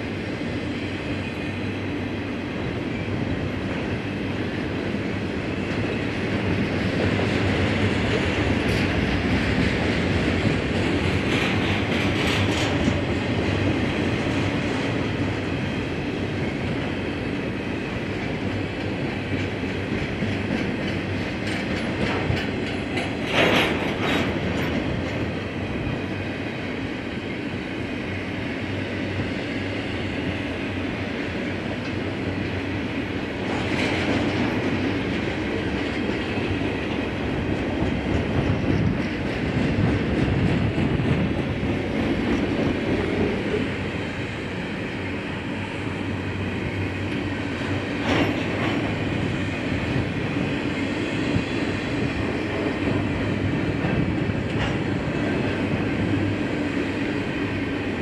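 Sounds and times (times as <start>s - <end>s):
freight train rumbling past: 0.0s - 58.0s
wheels clacking over rails: 5.6s - 15.4s, 18.1s - 25.4s, 47.0s - 57.3s.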